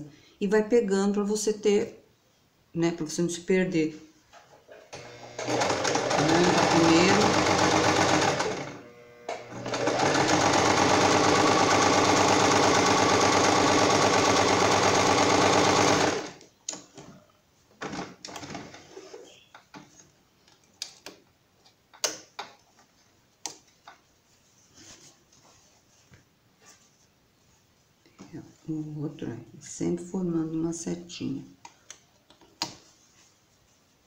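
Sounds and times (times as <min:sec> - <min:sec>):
sewing machine stitching: 0:05.0 - 0:16.4.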